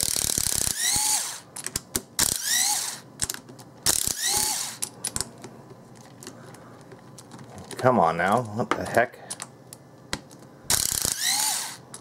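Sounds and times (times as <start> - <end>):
cordless driver whirring: 0.0 - 1.4, 2.2 - 3.0, 3.9 - 4.8, 10.7 - 11.8.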